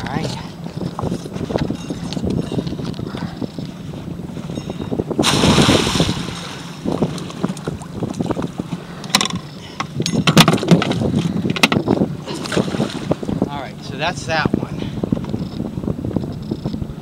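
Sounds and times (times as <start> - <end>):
trap splashing into water: 5.2 - 6.8.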